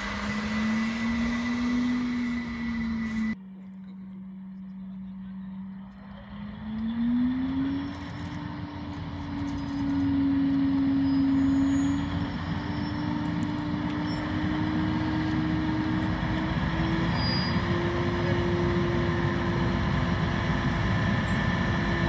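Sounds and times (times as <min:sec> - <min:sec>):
diesel locomotive engine revving: 0:00.0 - 0:22.0.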